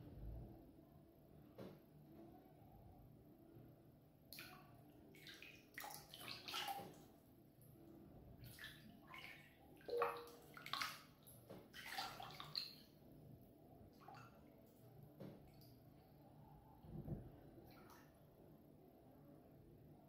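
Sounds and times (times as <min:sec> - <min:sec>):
bath water lapping and splashing: 0:04.3 - 0:07.2, 0:08.4 - 0:13.0, 0:13.9 - 0:15.8.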